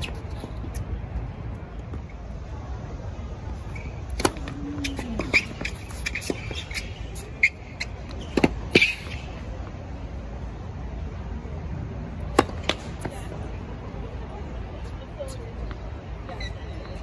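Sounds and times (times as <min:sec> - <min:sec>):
tennis balls struck and bouncing: 0:03.8 - 0:09.5, 0:12.2 - 0:13.4.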